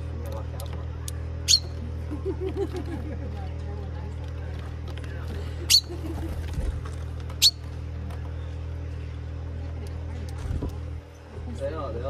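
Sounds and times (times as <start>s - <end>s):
steady low hum: 0.0s - 12.0s
chaffinch calls: 1.4s - 1.8s, 5.7s - 6.0s, 7.4s - 7.6s.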